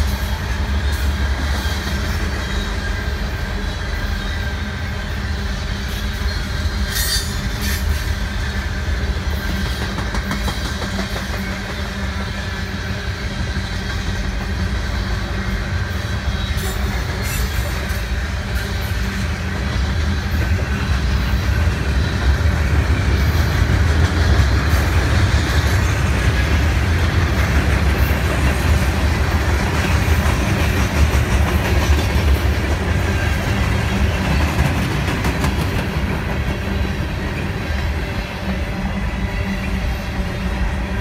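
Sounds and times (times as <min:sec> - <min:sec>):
train wheels rumbling on rails: 0:00.0 - 0:41.0.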